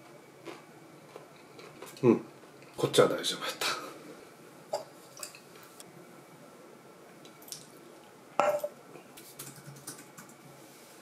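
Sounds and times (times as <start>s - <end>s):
tableware clinking: 8.4s - 8.8s.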